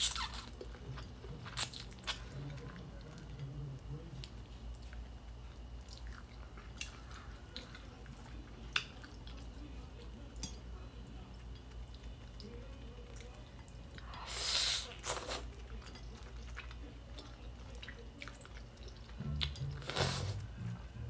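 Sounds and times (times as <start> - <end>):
noodles being slurped: 19.8 - 20.5.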